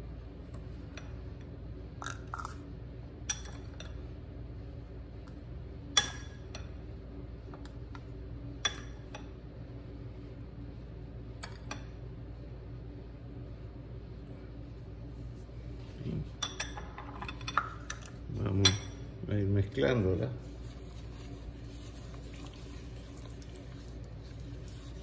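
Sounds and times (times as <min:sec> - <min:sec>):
steady low hum: 0:00.0 - 0:25.0
kitchenware clinking: 0:16.3 - 0:19.2.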